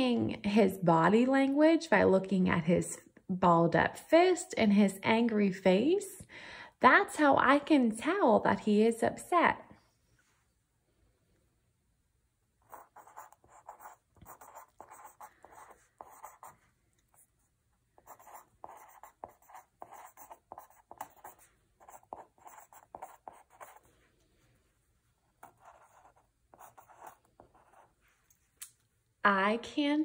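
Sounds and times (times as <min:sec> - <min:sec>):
pen scratching on paper: 0:12.6 - 0:23.9, 0:25.2 - 0:28.0.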